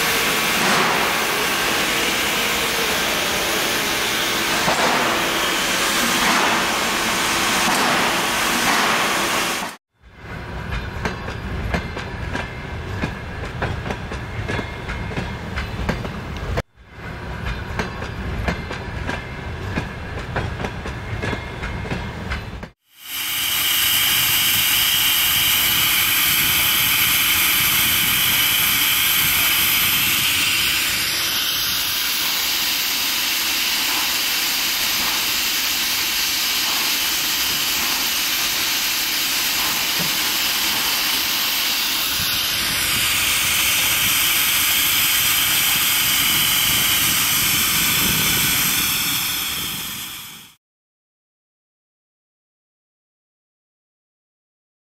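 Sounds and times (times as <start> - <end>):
steam train hissing: 0.0 - 9.8, 22.8 - 50.6
train wheels clattering over rails: 0.0 - 22.8, 23.8 - 50.5.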